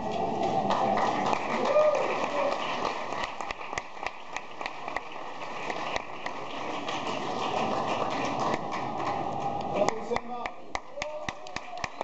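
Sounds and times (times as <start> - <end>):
audience applauding: 0.0 - 12.0.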